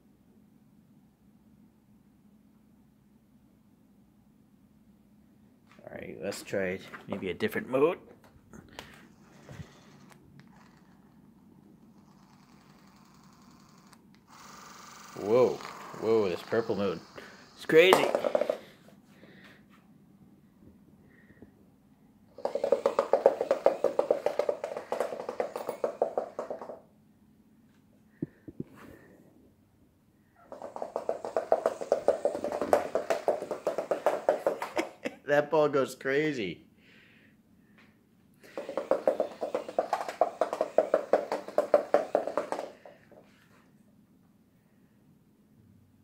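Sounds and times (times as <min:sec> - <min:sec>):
toy ball rattling across floor: 0:09.4 - 0:18.8, 0:22.4 - 0:26.8, 0:30.4 - 0:35.1, 0:38.4 - 0:43.3.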